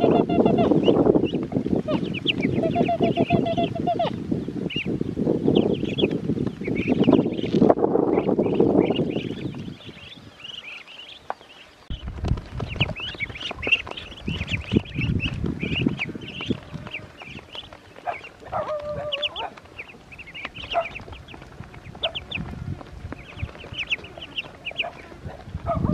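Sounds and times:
duckling wavering call: 0.0 - 0.9, 1.9 - 4.2
ducklings peeping: 0.0 - 25.9
bumps and rustling from birds: 0.6 - 25.9.

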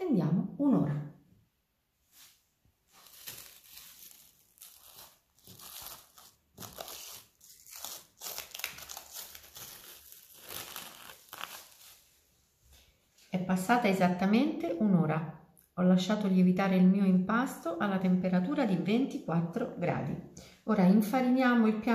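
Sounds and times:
cling film crinkling: 2.9 - 12.1.

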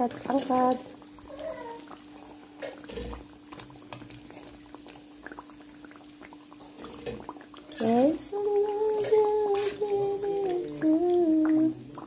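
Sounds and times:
oil bubbling and crackling: 0.0 - 12.0.

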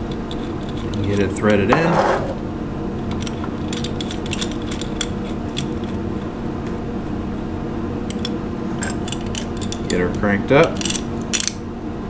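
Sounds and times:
low machine hum: 0.0 - 12.0.

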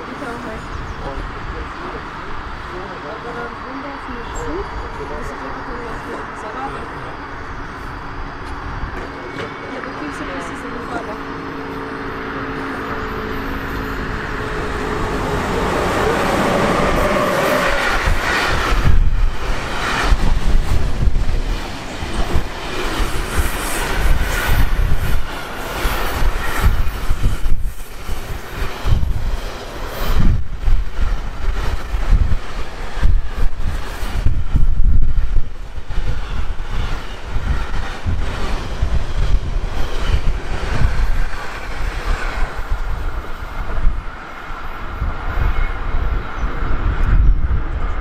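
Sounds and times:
freight train wheels rumbling: 0.0 - 48.0.

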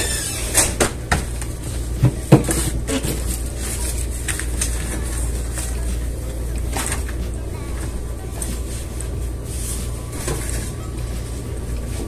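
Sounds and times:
steady low hum: 0.0 - 12.0
paper rustling: 2.4 - 12.0.

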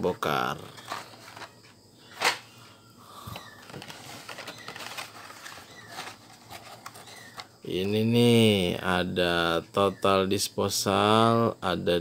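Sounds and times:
plastic and cardboard rustling: 0.5 - 2.4, 3.4 - 7.6.

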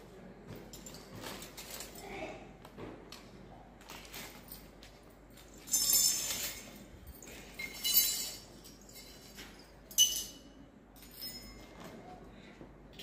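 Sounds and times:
metal toy utensils clinking: 5.4 - 11.7.

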